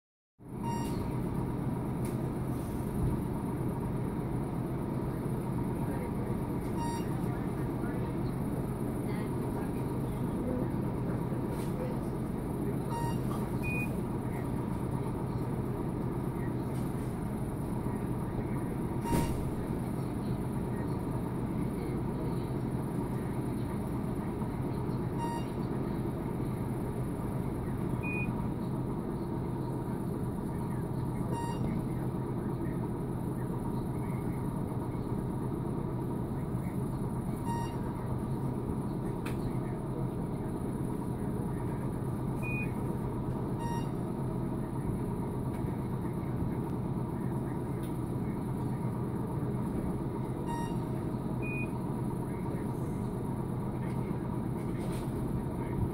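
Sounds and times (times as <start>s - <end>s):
ventilation hum and rumble: 0.4s - 55.9s
short electronic beep: 0.6s - 1.1s, 6.8s - 7.3s, 12.9s - 14.0s, 19.0s - 19.5s, 25.2s - 25.6s, 31.3s - 31.8s, 37.4s - 37.9s, 43.6s - 44.0s, 50.5s - 51.7s
faint high beeps: 0.6s - 1.3s, 6.7s - 7.5s, 12.8s - 14.0s, 19.0s - 19.6s, 25.1s - 25.7s, 28.0s - 28.4s, 31.2s - 31.9s, 37.4s - 38.0s, 42.4s - 42.9s, 43.6s - 44.1s, 50.4s - 51.8s.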